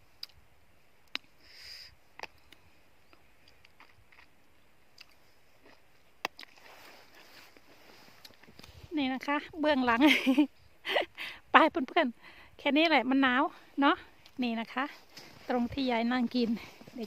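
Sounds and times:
chewing cherries: 2.2 - 7.6.

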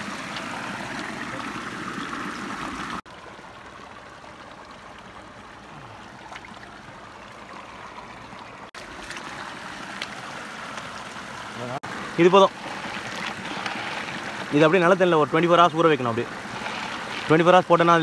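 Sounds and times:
stream trickling over rocks: 0.0 - 18.0.

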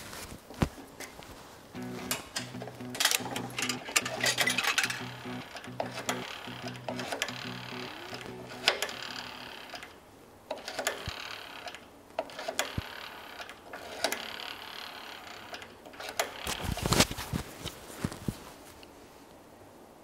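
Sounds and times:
sharp clicks: 1.8 - 9.9
welding arc crackling: 1.8 - 9.9.

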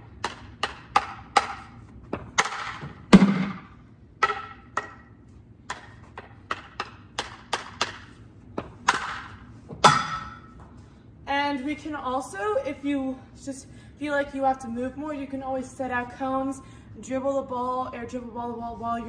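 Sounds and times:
hockey stick tapping ball: 0.0 - 3.6, 4.2 - 10.6
hard ball hits: 0.2 - 5.0, 5.7 - 10.6.

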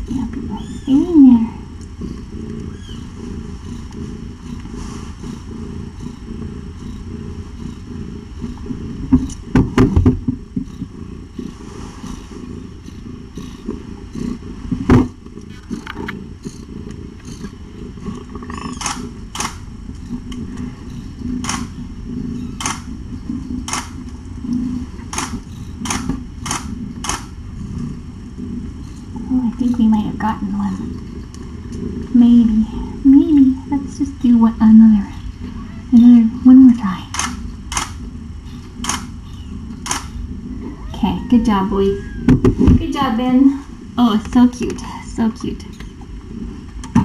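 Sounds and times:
cat purring: 0.0 - 47.0
loud knocks: 9.1 - 10.9, 42.3 - 42.8
sharp clicks: 18.7 - 20.4, 21.4 - 21.7, 22.6 - 22.9, 23.6 - 27.3, 37.1 - 38.0, 38.6 - 39.1, 39.7 - 40.1.

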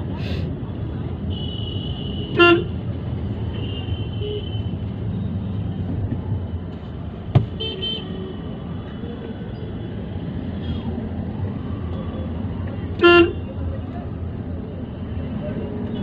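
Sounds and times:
car engine and road rumble: 4.9 - 9.2
sharp knock: 7.3 - 7.6
vehicle horns honking: 7.4 - 8.1.

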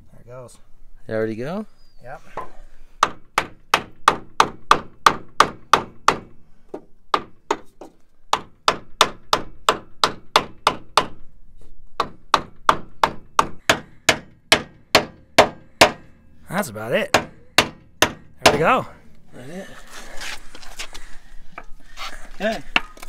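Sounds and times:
hammer striking wooden block: 12.0 - 16.0.

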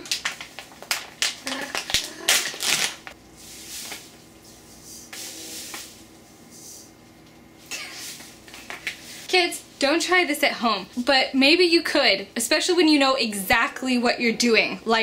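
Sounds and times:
plastic bag crinkling: 0.0 - 3.2.

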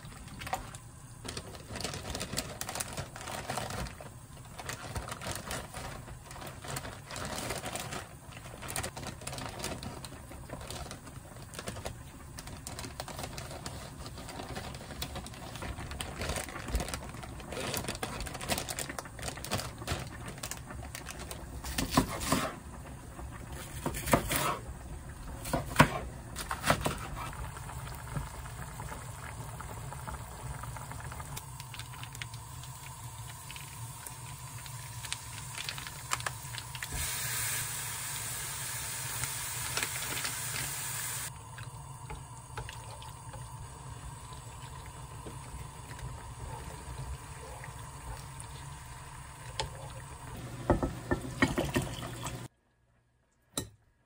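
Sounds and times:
meat sizzling in a pan: 31.4 - 41.4.

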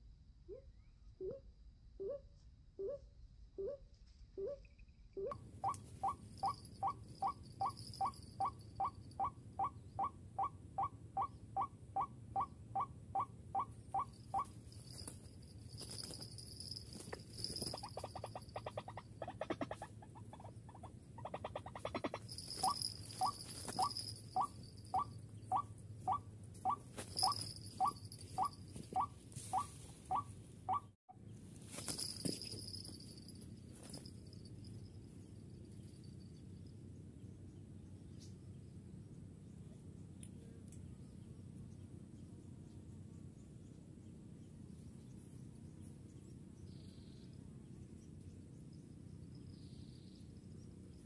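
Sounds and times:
waterhen calling: 17.6 - 30.9.

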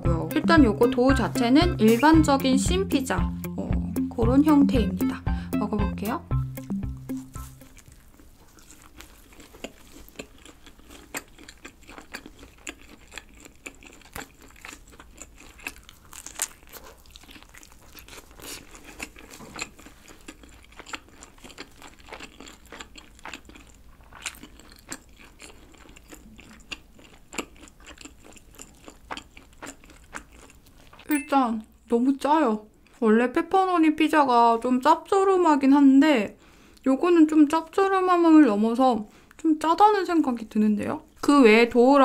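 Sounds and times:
biting and chewing pizza crust: 6.9 - 31.1.

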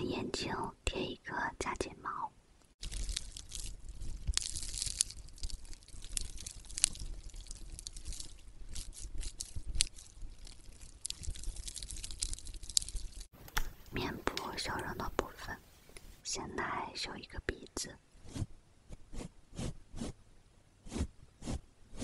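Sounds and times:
soft handling crackles: 2.8 - 16.2.

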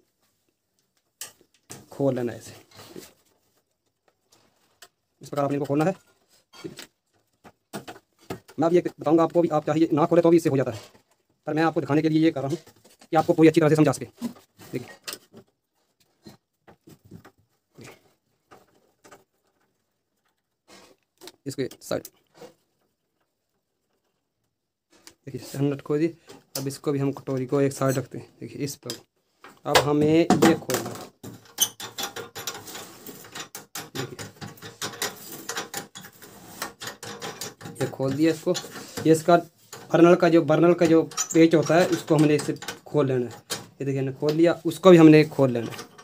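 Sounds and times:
metallic clicks and scraping: 31.2 - 44.5, 45.3 - 46.0.

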